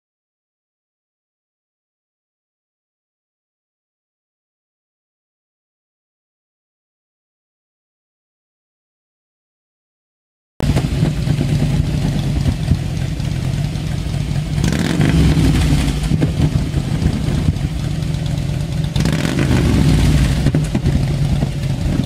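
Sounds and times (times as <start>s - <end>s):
motorcycle idling and revving: 10.6s - 22.0s.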